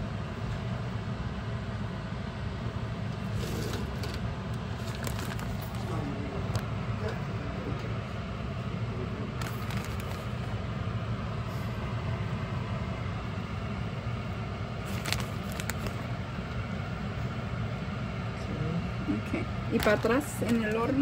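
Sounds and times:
plastic bag clicks and rustles: 4.8 - 5.9, 9.4 - 10.4, 14.8 - 16.1, 19.8 - 20.8.

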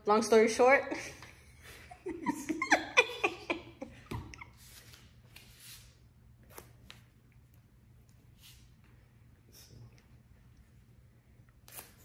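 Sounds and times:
man laughing: 1.6 - 4.6.

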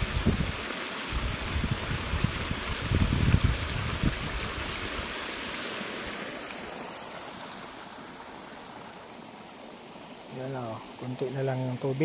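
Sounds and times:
wind buffeting microphone: 0.0 - 5.1.

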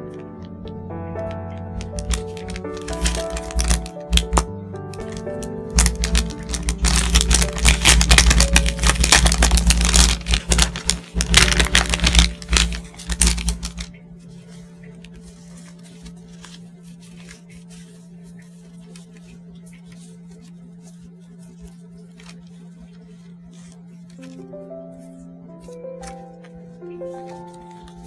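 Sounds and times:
paper stickers rustling: 1.2 - 28.0
plastic wrapper crinkling: 1.2 - 28.0.

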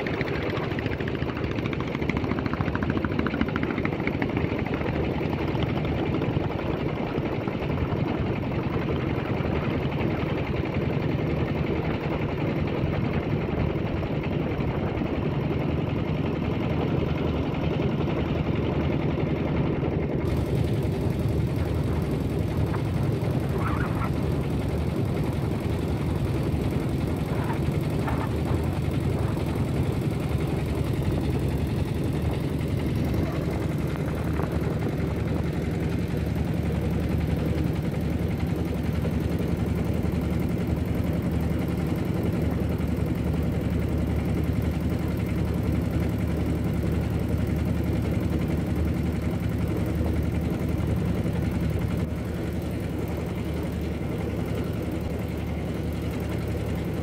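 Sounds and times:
boat engine droning: 19.8 - 57.0.

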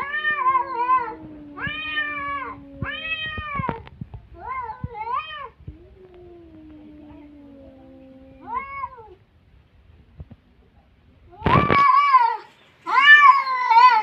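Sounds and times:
cat low moan: 0.0 - 9.2
cats yowling: 0.0 - 9.2, 11.4 - 14.0.

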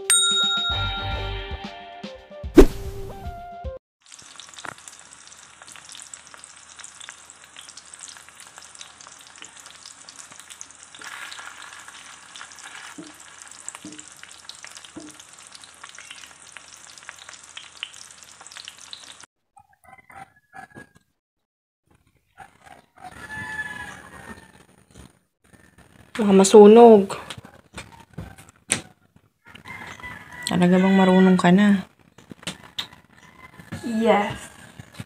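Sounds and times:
hot dogs sizzling in oil: 4.0 - 19.3.

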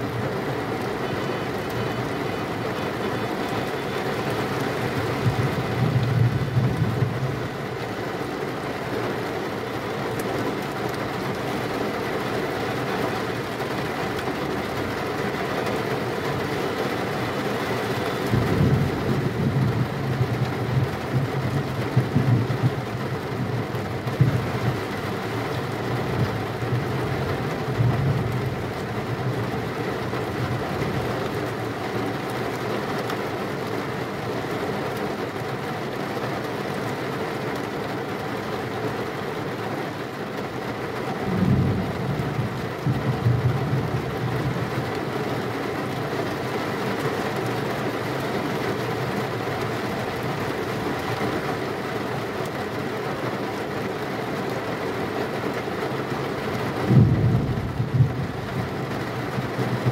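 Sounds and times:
steady rain: 0.0 - 59.9
thunder rumbling: 4.8 - 7.5, 17.9 - 31.3, 41.2 - 44.9, 56.7 - 59.9.

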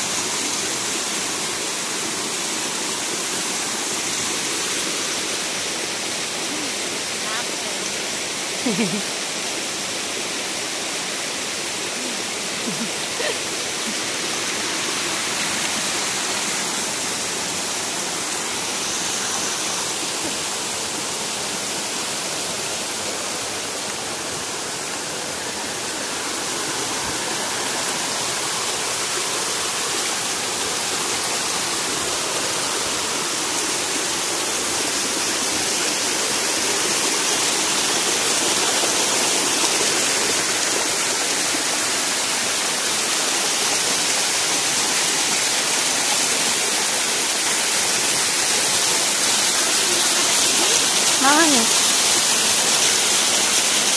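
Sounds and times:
water rushing over rocks: 0.0 - 53.9.

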